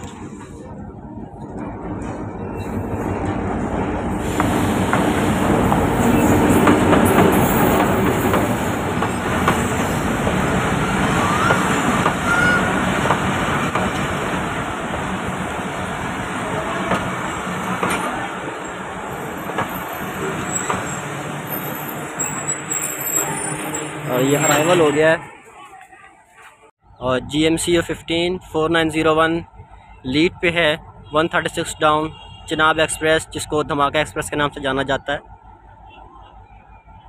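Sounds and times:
diesel locomotive engine: 0:00.0 - 0:31.0
train wheels clacking over rail joints: 0:03.0 - 0:10.5, 0:16.8 - 0:18.3, 0:19.3 - 0:21.1
wheel squeal: 0:05.9 - 0:06.6, 0:18.6 - 0:25.0.

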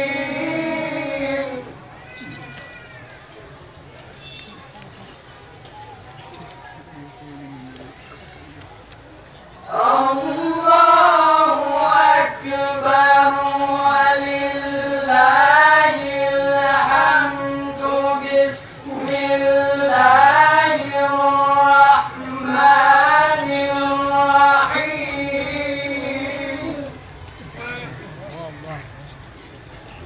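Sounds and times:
men reciting in unison: 0:00.0 - 0:02.0, 0:09.6 - 0:28.2.

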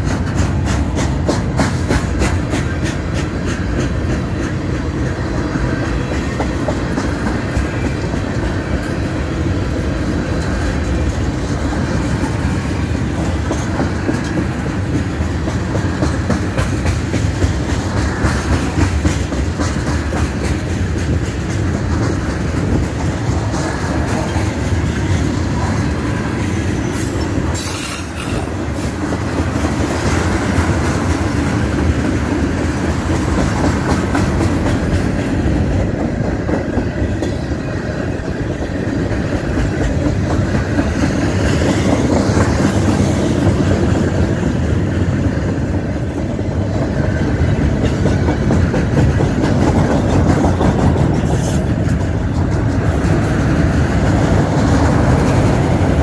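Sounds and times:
train wheels rumbling on rails: 0:00.0 - 0:56.0
high wheel squeal: 0:26.8 - 0:28.8.

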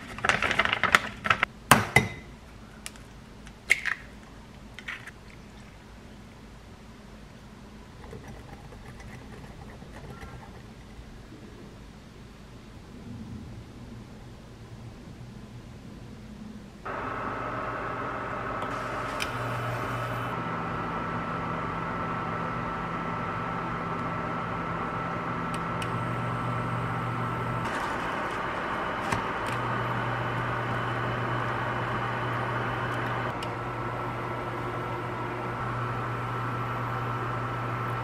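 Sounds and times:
kitchen appliance hum and whine: 0:16.8 - 0:38.0.

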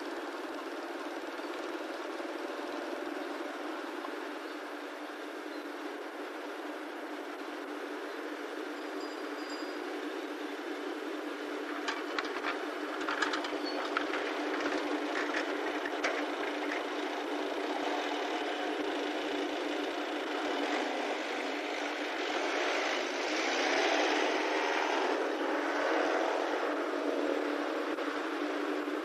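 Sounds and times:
traffic engine drone: 0:00.0 - 0:29.0
vehicle approaching: 0:10.3 - 0:29.0.

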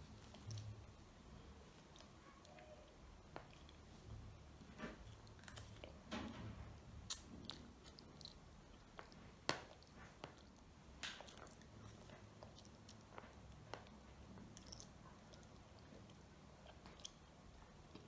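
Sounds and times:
child chewing and slurping noodles: 0:06.8 - 0:18.0.

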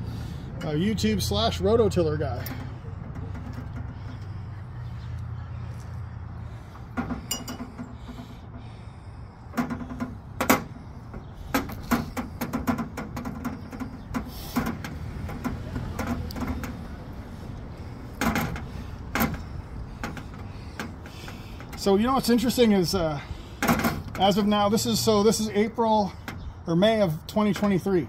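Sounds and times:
pipe cutter clicking and scraping: 0:09.5 - 0:21.9.

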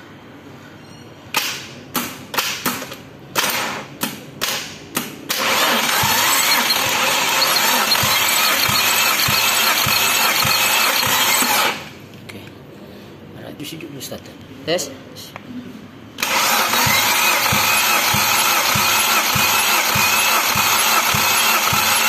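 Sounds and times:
starter motor cranking engine: 0:05.3 - 0:11.9, 0:16.2 - 0:22.0.

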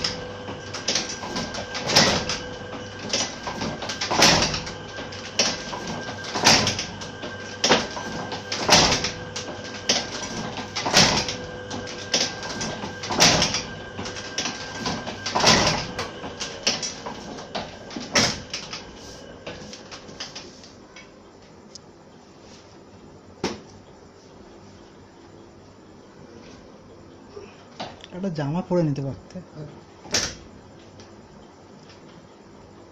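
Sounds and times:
letterpress platen clanking: 0:00.0 - 0:20.4
linkage and roller clicks: 0:00.0 - 0:20.7
machine hum: 0:00.0 - 0:32.9.

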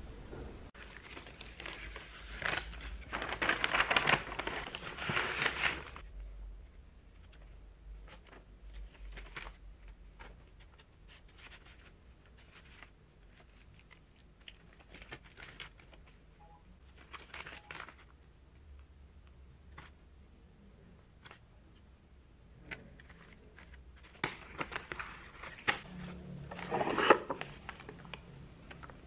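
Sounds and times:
paper rustling and crinkling: 0:00.8 - 0:06.1, 0:07.1 - 0:18.2, 0:22.6 - 0:29.0.

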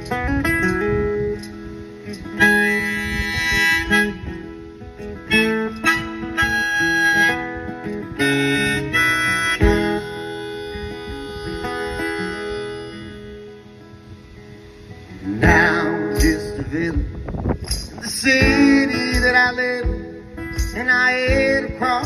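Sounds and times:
acoustic guitar strumming: 0:00.0 - 0:22.0
harmonica playing held notes: 0:02.2 - 0:13.8.

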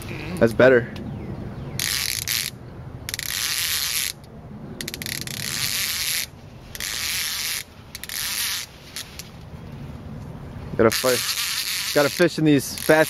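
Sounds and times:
fishing reel buzzing: 0:01.8 - 0:04.2, 0:04.8 - 0:09.3, 0:10.9 - 0:13.0.

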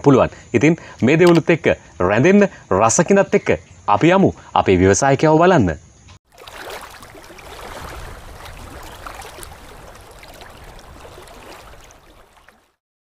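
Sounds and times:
rushing water-like sound effect: 0:06.3 - 0:12.8.

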